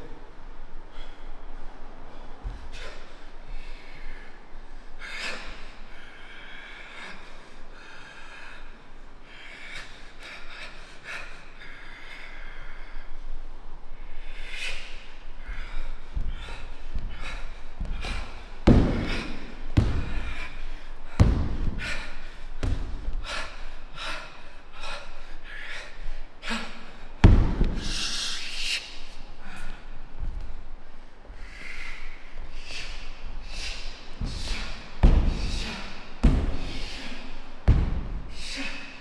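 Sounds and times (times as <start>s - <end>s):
heavy thuds: 17.8s - 20.5s, 21.1s - 22.0s, 22.6s - 23.2s, 27.2s - 27.9s, 34.2s - 38.5s
sharp forceful exhalations: 31.5s - 39.0s.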